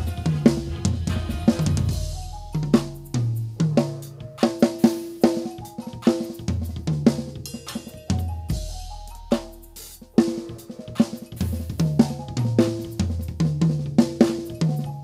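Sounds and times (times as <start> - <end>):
cymbal ringing: 0.0 - 3.4
backing track bass and chords: 0.0 - 15.0
drum kit playing: 0.0 - 15.0.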